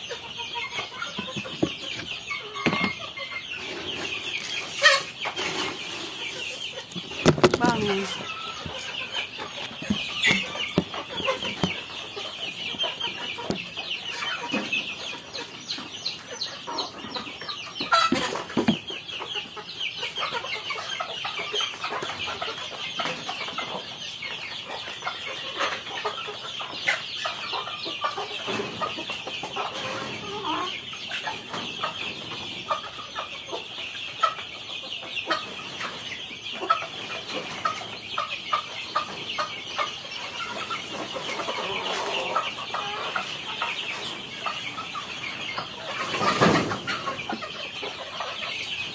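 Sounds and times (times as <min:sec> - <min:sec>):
chickens clucking and calling: 0:00.0 - 0:48.9.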